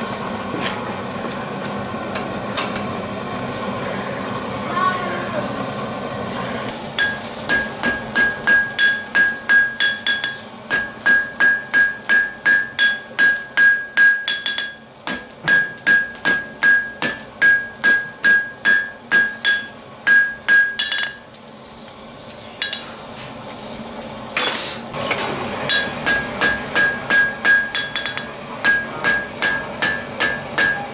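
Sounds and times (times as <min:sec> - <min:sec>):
anvil ringing: 0:07.0 - 0:21.3, 0:22.6 - 0:22.9, 0:25.1 - 0:30.9
hammer striking steel on anvil: 0:07.0 - 0:21.3, 0:22.6 - 0:23.0, 0:24.4 - 0:30.9.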